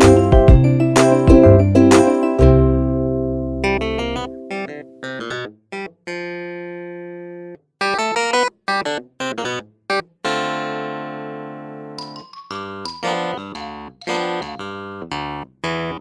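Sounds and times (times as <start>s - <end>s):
instrumental music with pitched notes: 0.0s - 6.9s, 11.6s - 16.0s.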